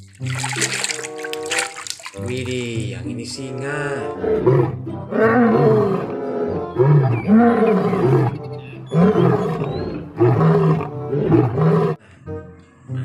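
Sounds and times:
lion roaring: 4.2s - 12.0s.

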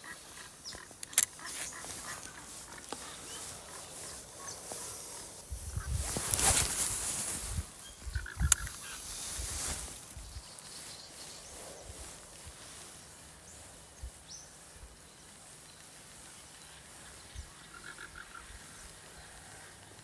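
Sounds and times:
short repeated bird calls: 0.0s - 6.8s, 7.8s - 12.2s, 15.5s - 19.9s.

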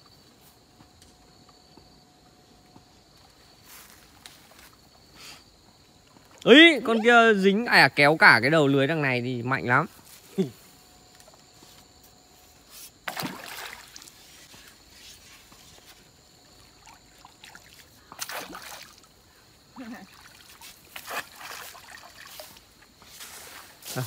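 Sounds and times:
pole beating pond water: 13.0s - 14.5s, 16.4s - 19.1s, 19.8s - 22.9s.

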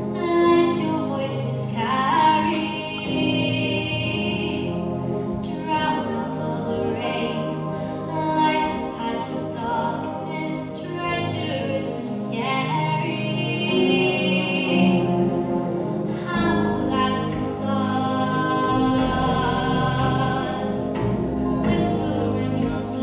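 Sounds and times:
instrumental accompaniment: 0.0s - 23.0s
girl singing: 0.2s - 4.7s, 5.4s - 15.1s, 16.1s - 20.9s.

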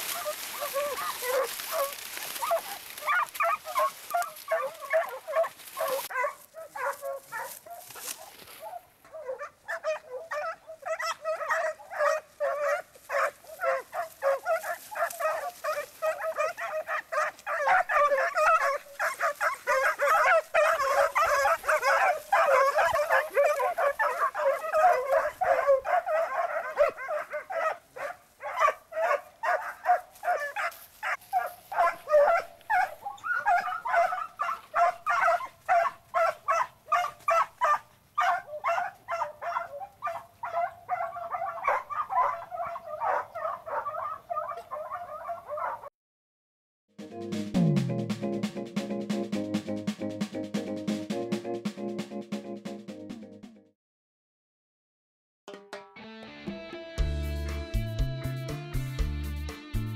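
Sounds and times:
dry stalks rustling: 0.0s - 43.2s
hounds yelping and barking: 0.0s - 45.9s.

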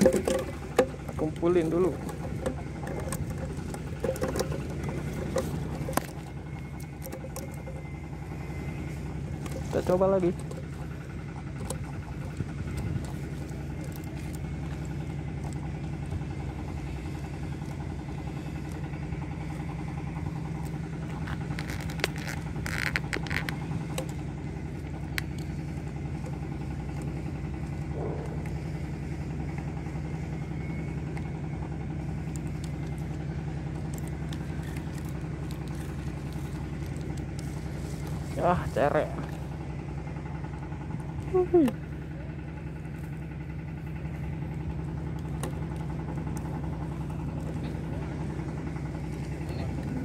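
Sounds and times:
engine idling: 0.0s - 50.0s.

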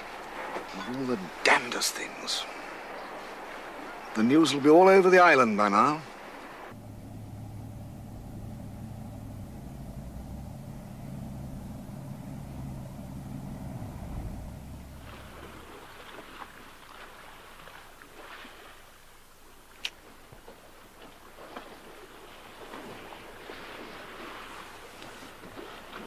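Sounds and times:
engine humming: 0.0s - 17.7s.

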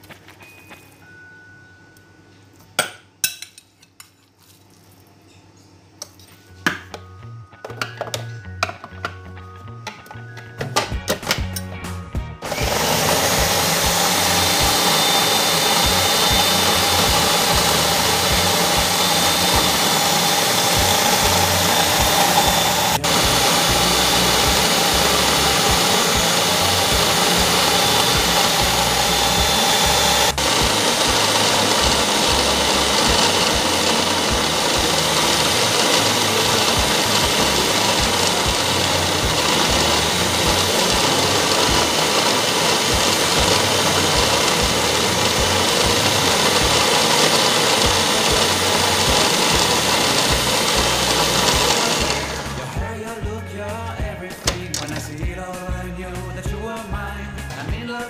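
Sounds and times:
food processor motor running: 12.4s - 52.8s.

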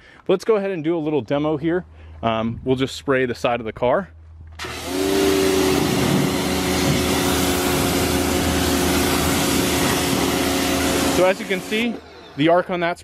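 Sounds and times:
pressure washer motor humming: 4.6s - 13.0s
water jet hissing on car: 5.2s - 11.9s.

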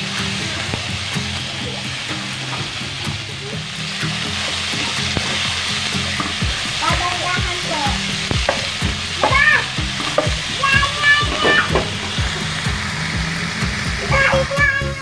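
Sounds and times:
meat sizzling in oil: 0.0s - 15.0s
spatula scraping and tapping pan: 8.3s - 12.5s.

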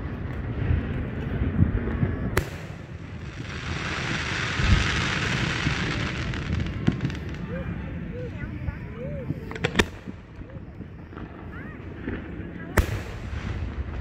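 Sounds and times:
fireworks booming: 0.0s - 7.9s, 9.2s - 14.0s
fireworks crack: 0.0s - 14.0s
fireworks crackling hiss: 0.3s - 8.4s.

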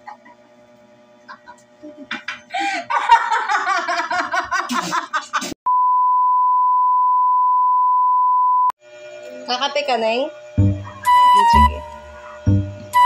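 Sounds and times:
steady single-pitch beep: 5.7s - 8.7s, 11.1s - 11.9s.

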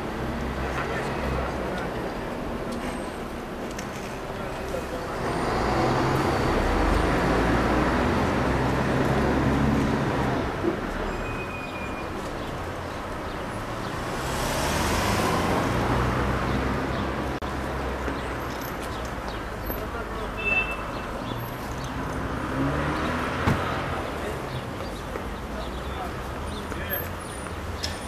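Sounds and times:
street traffic: 0.0s - 28.0s.

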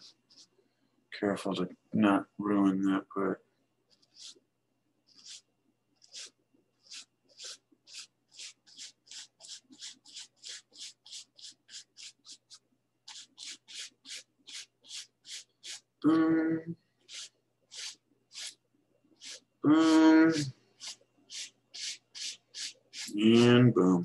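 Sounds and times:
brush stroking paint on canvas: 0.0s - 0.6s, 3.9s - 4.4s, 5.1s - 15.9s, 17.0s - 18.6s, 19.2s - 23.6s.

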